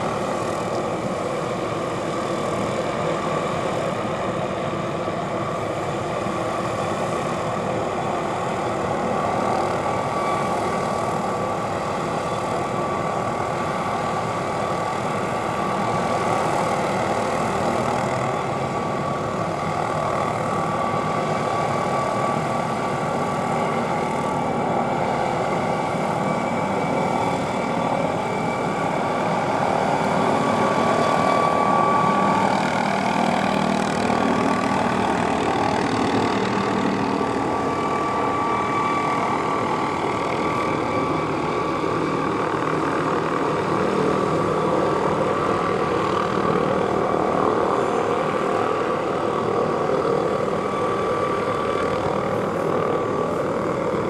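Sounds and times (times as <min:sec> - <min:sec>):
helicopter rotor: 0:00.0 - 0:54.0
helicopter turbine whine: 0:00.0 - 0:54.0.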